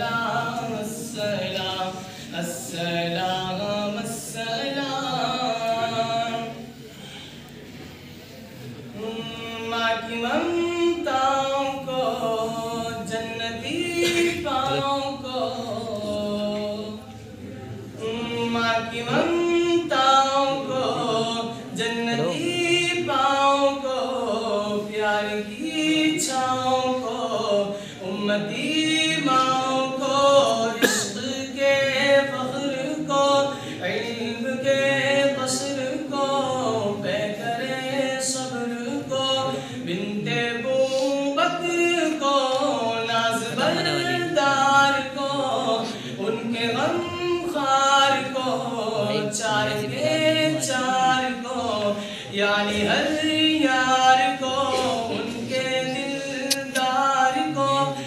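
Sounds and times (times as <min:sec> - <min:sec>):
man singing a cappella: 0:00.0 - 0:06.7, 0:08.9 - 0:17.2, 0:17.9 - 0:58.0.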